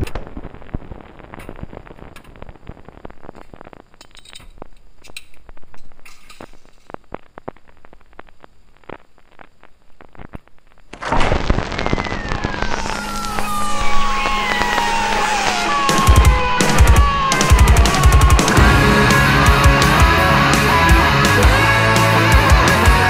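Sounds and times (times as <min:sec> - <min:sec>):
loud rock music with drums: 0:14.1 - 0:23.0.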